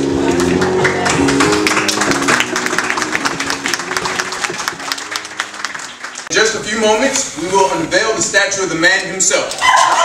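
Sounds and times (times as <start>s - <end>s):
audience applauding: 0.0s - 6.3s, 9.5s - 10.0s.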